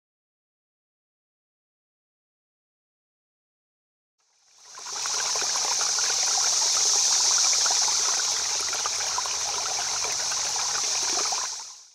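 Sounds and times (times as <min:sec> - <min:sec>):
stream trickling and splashing: 0:04.3 - 0:11.9
high hiss: 0:04.5 - 0:11.9.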